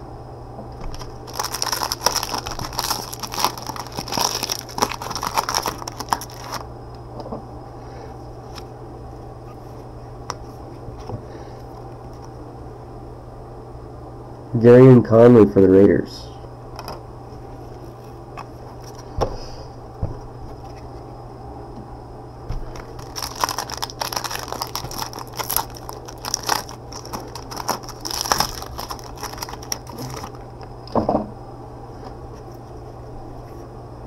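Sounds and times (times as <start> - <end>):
steady low hum: 0.0 - 34.0
cards crackling and rustling: 0.8 - 6.6, 17.6 - 19.1, 22.5 - 30.7.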